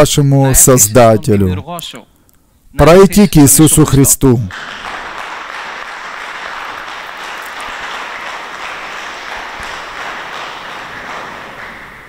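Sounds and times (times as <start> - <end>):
people clapping: 4.5 - 12.0.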